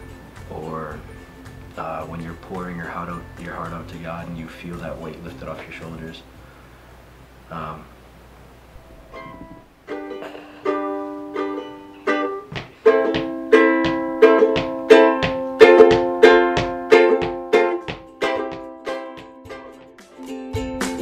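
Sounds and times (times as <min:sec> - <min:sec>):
ukulele strumming: 0:08.8 - 0:21.0.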